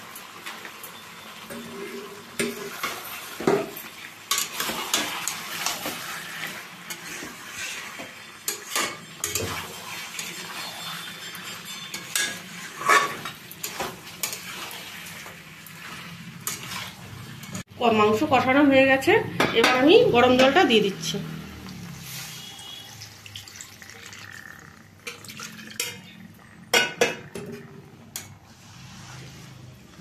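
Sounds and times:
oil sizzling: 0:00.0 - 0:19.1, 0:19.8 - 0:30.0
metal spatula scraping a pan: 0:01.4 - 0:17.6, 0:21.9 - 0:23.0, 0:24.3 - 0:30.0.

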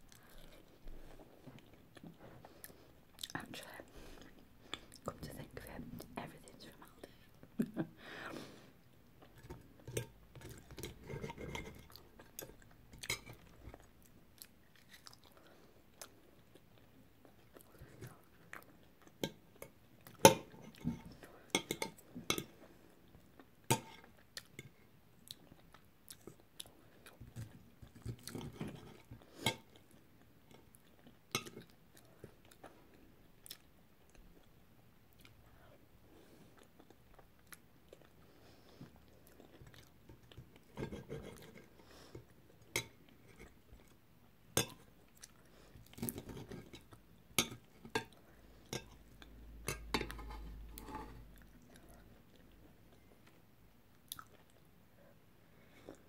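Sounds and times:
chewing: 0:00.1 - 0:03.6, 0:09.2 - 0:44.0, 0:44.6 - 0:56.0.

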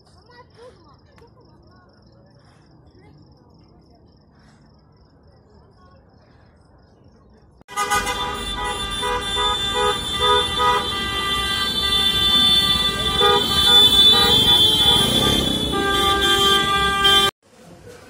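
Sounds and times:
street traffic: 0:00.0 - 0:18.0
car horns honking: 0:07.7 - 0:17.4.

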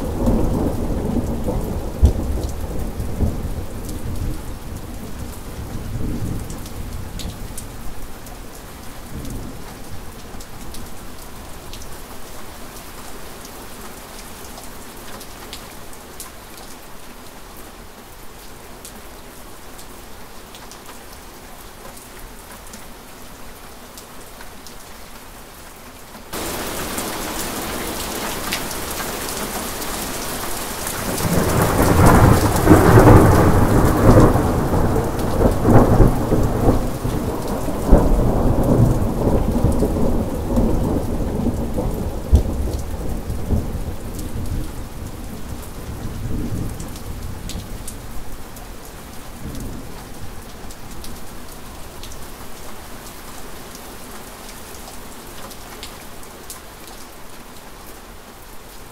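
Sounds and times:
thunder rumbling and cracking: 0:00.0 - 0:07.0, 0:26.4 - 0:29.8, 0:30.5 - 0:47.7
steady rain: 0:00.0 - 0:58.9.

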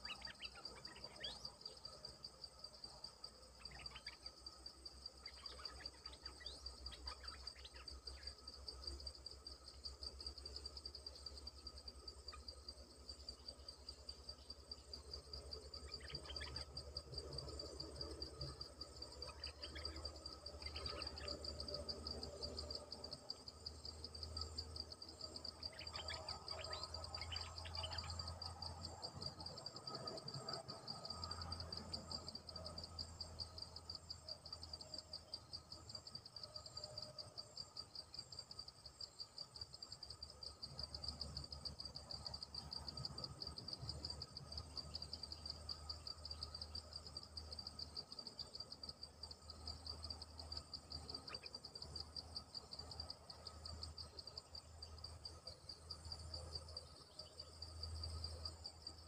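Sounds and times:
high pulsing insect drone: 0:00.0 - 0:59.0.

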